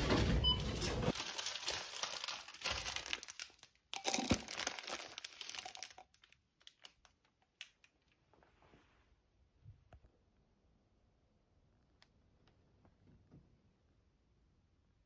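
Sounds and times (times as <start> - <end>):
plastic sleeve crinkling: 1.1 - 8.2.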